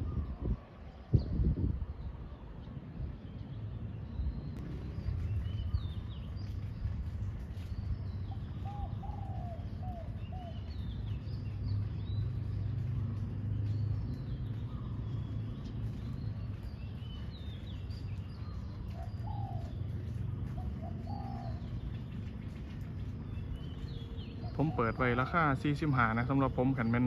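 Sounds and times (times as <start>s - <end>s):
small birds chirping: 1.0s - 27.0s
doves cooing: 8.3s - 11.0s, 18.4s - 25.2s.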